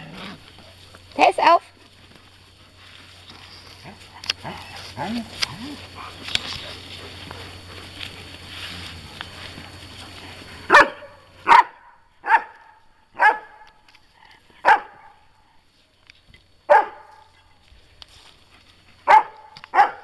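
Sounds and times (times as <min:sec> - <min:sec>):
puppy barking: 0:10.7 - 0:13.7, 0:14.6 - 0:15.1, 0:16.7 - 0:17.3, 0:19.0 - 0:20.0.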